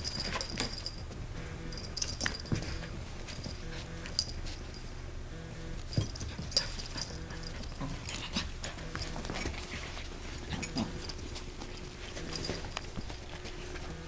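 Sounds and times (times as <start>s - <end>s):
collar tags clinking: 0.0s - 5.0s, 5.8s - 14.0s
animals scuffling on carpet: 5.6s - 14.0s.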